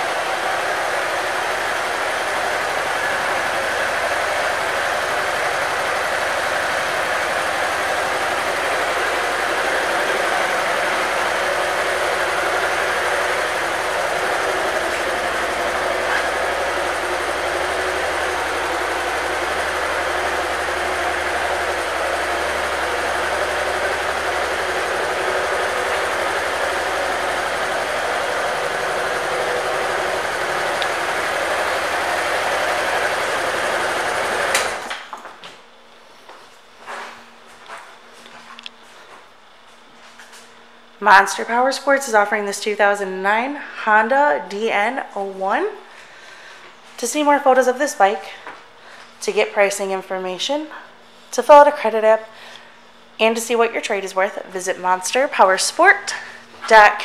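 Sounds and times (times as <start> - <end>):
motorcycle engine idling: 0.0 - 34.9.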